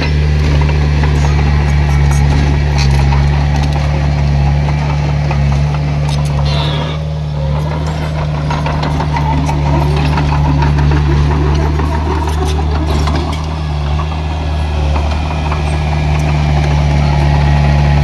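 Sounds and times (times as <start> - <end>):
diesel engine running: 0.0 - 18.0
high squeal: 6.3 - 7.2.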